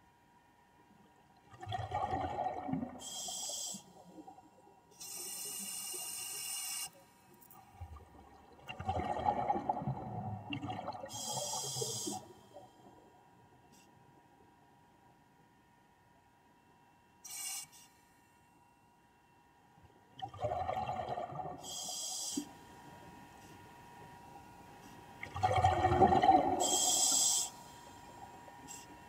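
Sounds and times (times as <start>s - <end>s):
bubbly gurgling exhalations: 1.6s - 3.0s, 7.8s - 11.5s, 20.2s - 21.6s, 25.2s - 26.9s
regulator hissing inhalation: 21.7s - 22.5s, 26.6s - 27.6s.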